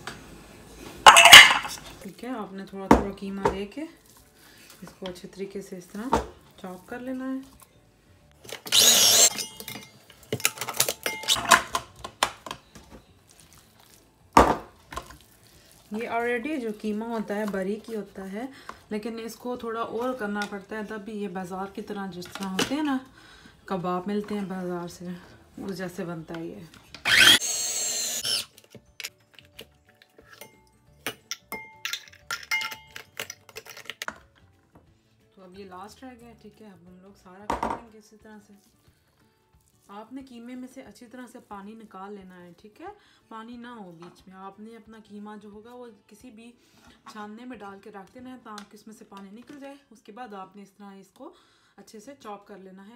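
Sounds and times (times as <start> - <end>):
food chopper motor whirring: 8.5 - 9.3, 27.0 - 28.8.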